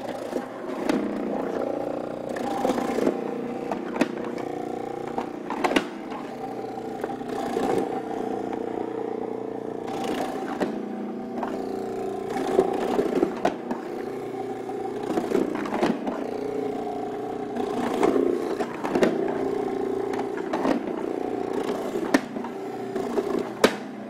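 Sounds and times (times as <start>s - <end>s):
food processor motor hum: 0.0s - 24.0s.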